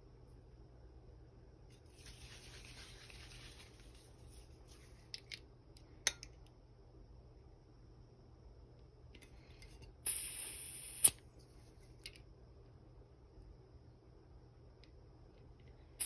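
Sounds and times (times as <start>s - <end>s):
handling and rustling of a can: 1.7s - 5.4s.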